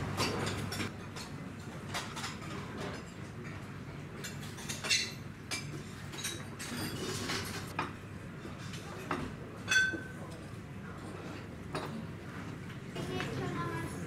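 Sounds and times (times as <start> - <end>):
dishes and cutlery clinking: 0.0 - 14.0.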